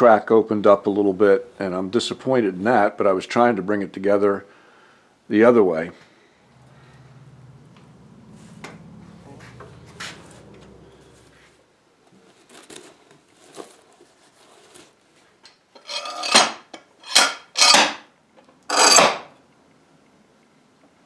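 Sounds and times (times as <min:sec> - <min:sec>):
loud scraping strokes: 0:18.7 - 0:19.3.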